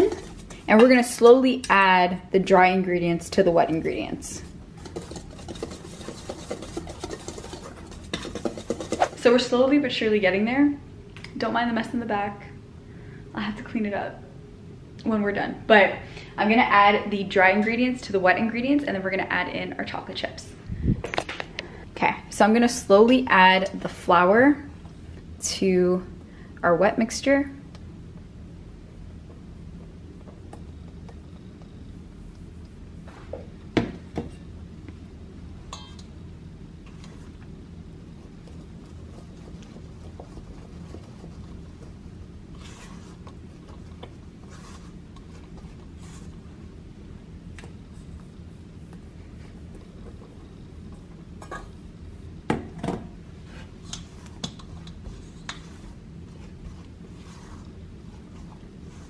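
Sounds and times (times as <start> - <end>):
spatula stirring in metal bowl: 0.0 - 1.0, 4.2 - 9.6, 38.0 - 46.6, 47.7 - 52.1, 53.4 - 59.0
steady low hum: 0.0 - 59.0.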